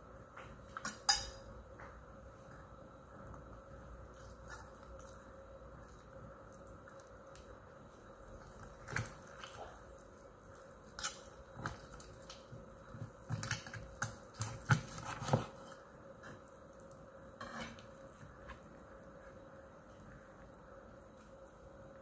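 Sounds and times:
faint steady hum: 0.0 - 22.0
meat squishing: 4.0 - 17.0.

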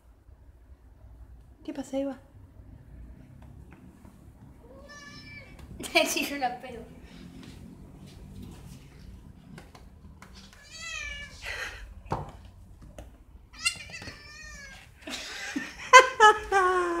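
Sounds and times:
cat meowing loudly: 4.6 - 5.6, 10.6 - 11.4, 13.6 - 14.8.

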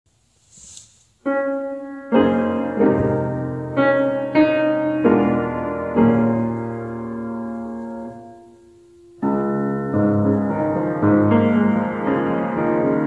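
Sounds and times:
soft noise: 0.1 - 1.3
piano chords: 1.2 - 13.0.

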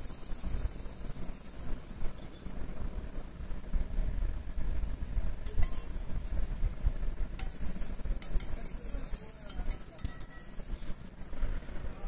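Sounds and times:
onions frying in oil: 0.0 - 12.0
metal spatula scraping griddle: 7.4 - 11.0.

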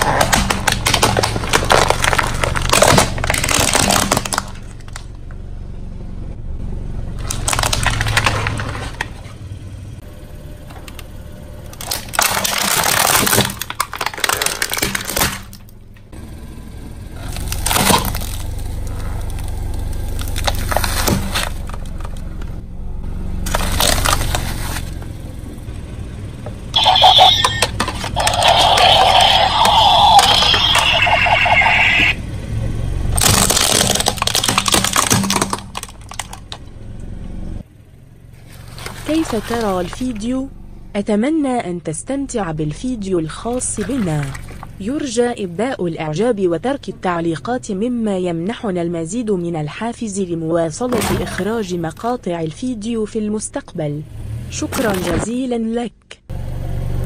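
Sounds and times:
plastic toys crunching and snapping: 0.0 - 5.1, 7.2 - 9.2, 11.7 - 15.7, 17.2 - 22.3, 23.5 - 24.9, 26.8 - 32.2, 33.2 - 36.6
car rumble: 0.0 - 55.6.

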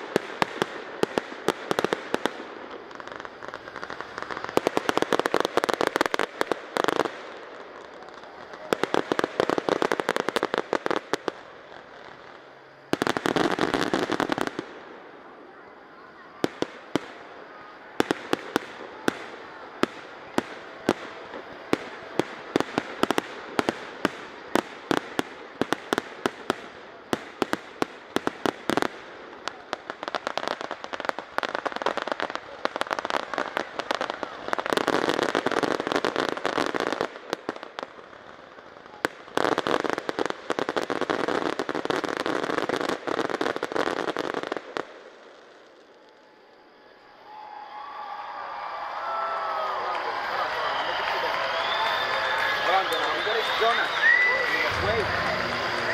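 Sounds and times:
fireworks crackling barrage: 0.0 - 55.9.

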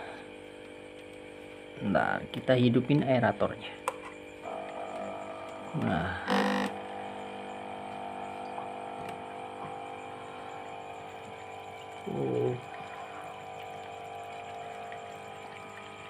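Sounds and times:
aquarium air pump humming: 0.0 - 16.0
water bubbling: 11.0 - 16.0.

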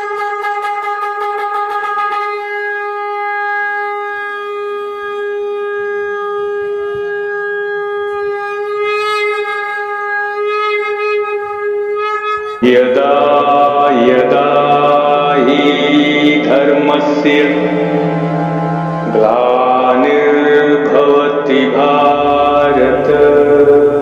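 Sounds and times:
conch shell blown: 0.0 - 12.6, 13.6 - 24.0
devotional chanting with music: 12.6 - 24.0.

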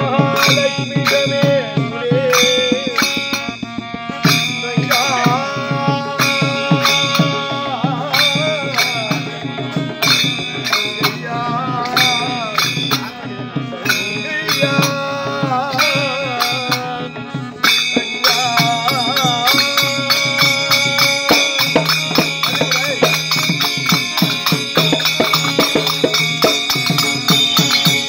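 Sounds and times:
group of men singing: 0.0 - 28.0
hand cymbals struck: 0.0 - 28.0
harmonium held notes: 0.0 - 28.0.

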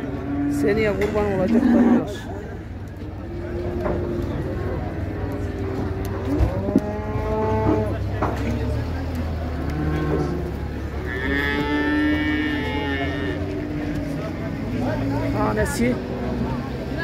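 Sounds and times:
cattle mooing: 0.0 - 2.2, 5.6 - 8.0, 9.4 - 14.2.

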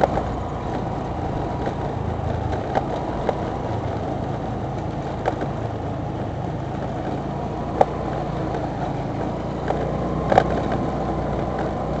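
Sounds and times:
motorbike engine and road noise: 0.0 - 12.0
sharp knocks over bumps: 0.0 - 12.0.

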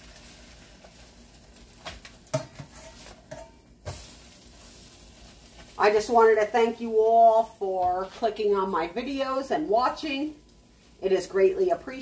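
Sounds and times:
spatula scraping a pan: 0.0 - 6.8
toast sizzling in a skillet: 0.0 - 12.0.

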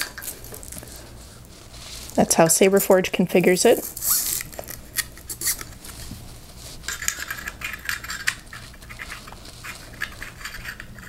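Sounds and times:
metal threads scraping and clicking: 6.9 - 11.0.

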